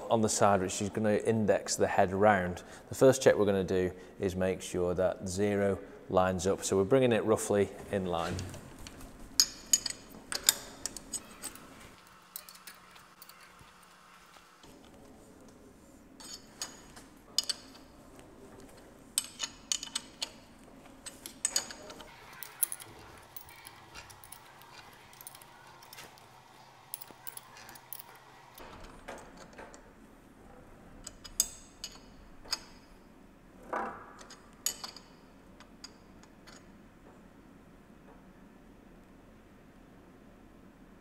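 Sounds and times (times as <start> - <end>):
spanner clinking on metal bolts: 9.4 - 13.8, 16.2 - 18.0, 19.2 - 26.3, 26.9 - 29.8, 31.0 - 33.0, 34.1 - 36.8.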